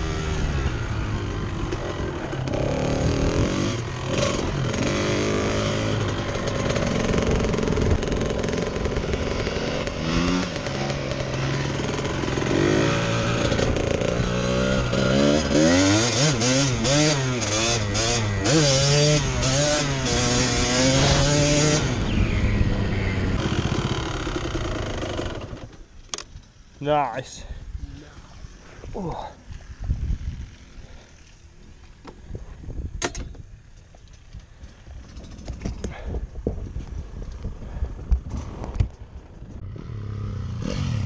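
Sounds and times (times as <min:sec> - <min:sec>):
motorcycle engine revving: 0:00.0 - 0:25.9, 0:37.6 - 0:41.0.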